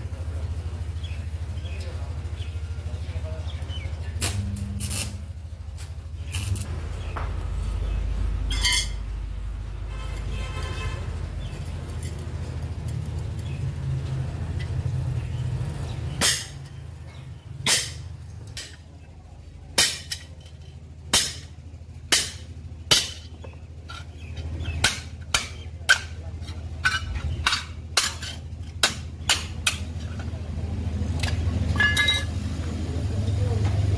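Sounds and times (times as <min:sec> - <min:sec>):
steady low hum: 0:00.0 - 0:33.9
hammer striking steel: 0:16.2 - 0:16.7, 0:17.6 - 0:18.8, 0:19.8 - 0:20.3, 0:21.1 - 0:21.5, 0:22.1 - 0:30.1, 0:31.2 - 0:32.4.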